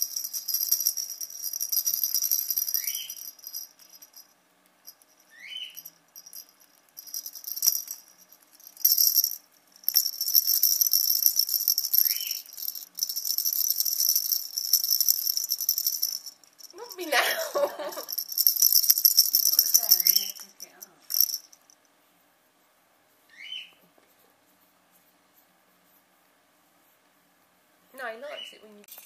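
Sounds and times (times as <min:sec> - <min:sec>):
plastic balls rattling with bell: 0:00.0 - 0:21.8
parrot chirps: 0:05.3 - 0:05.9.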